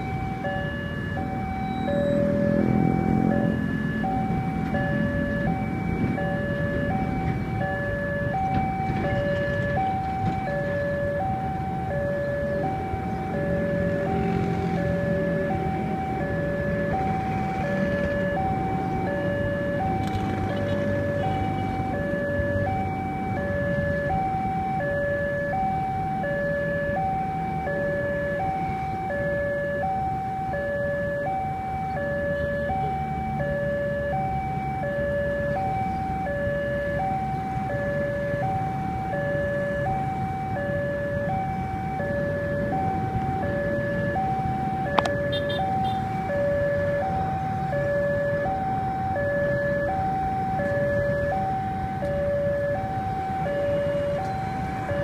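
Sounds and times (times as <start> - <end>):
level crossing two-tone alarm: 0.0 - 55.0
motorcycle engines idling: 6.2 - 23.8.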